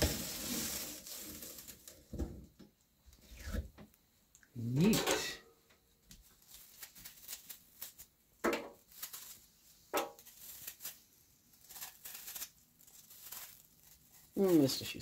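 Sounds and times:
knife paring apple peel: 0:06.4 - 0:08.1, 0:08.7 - 0:14.8.

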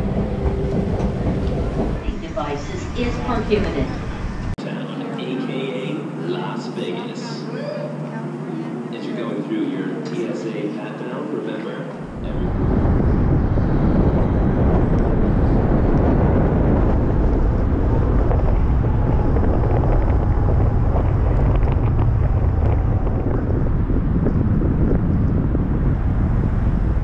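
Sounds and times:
car road noise: 0:00.0 - 0:04.6, 0:11.9 - 0:27.0
wind buffeting microphone: 0:00.0 - 0:04.6, 0:11.9 - 0:27.0.

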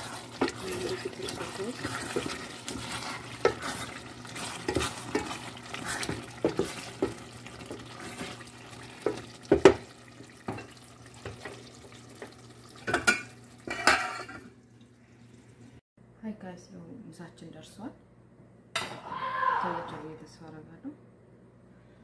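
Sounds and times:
metal ladle knocking and scraping pot: 0:00.0 - 0:09.9, 0:12.2 - 0:14.5
stew sizzling: 0:00.0 - 0:15.8.

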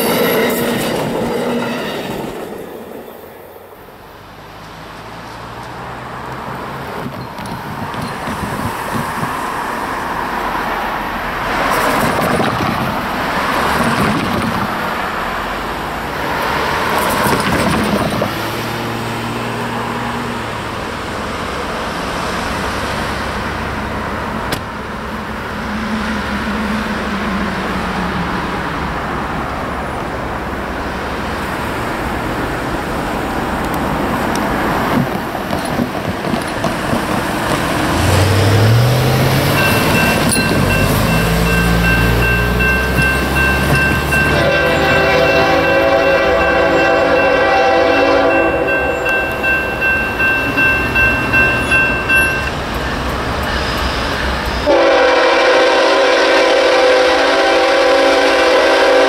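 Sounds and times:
diesel locomotive engine rumble: 0:00.0 - 0:59.0
rail and wheel noise: 0:00.0 - 0:59.0.

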